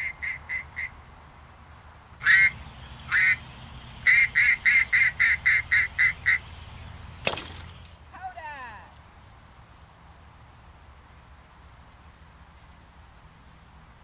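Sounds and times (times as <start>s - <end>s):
duck call quacks: 2.2s - 3.4s, 4.1s - 6.4s
launcher firing crack: 7.2s - 8.0s.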